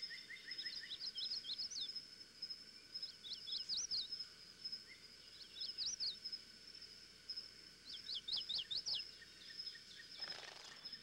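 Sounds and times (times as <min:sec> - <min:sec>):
bird chirping: 0:02.9 - 0:04.2, 0:04.8 - 0:06.3, 0:07.8 - 0:11.0.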